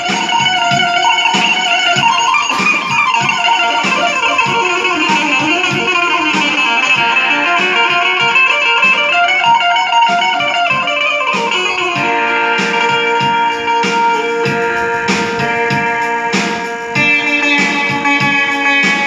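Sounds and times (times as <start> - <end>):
amplified plucked string instrument melody: 0.0 - 19.0.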